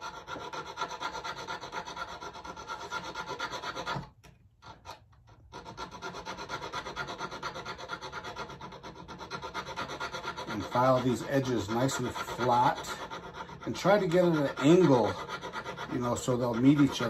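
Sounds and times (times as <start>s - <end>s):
hand file rasping on metal: 0.0s - 17.0s.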